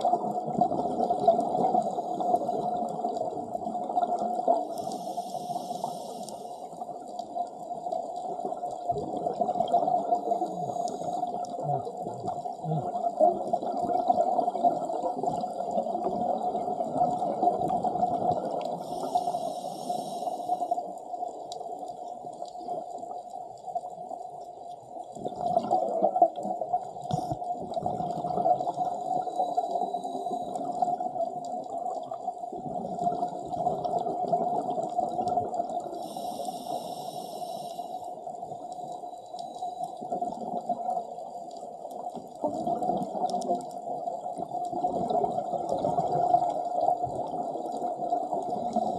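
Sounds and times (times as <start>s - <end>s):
bubbles gurgling underwater: 0.0s - 4.8s, 6.8s - 19.1s, 25.1s - 29.6s, 30.3s - 36.2s, 42.0s - 48.9s
high hisses: 4.8s - 6.6s, 18.9s - 20.6s, 36.1s - 38.0s.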